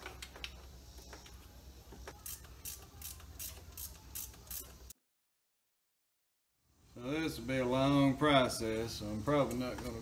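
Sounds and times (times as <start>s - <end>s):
ratcheting wrench clicking: 2.2s - 4.9s.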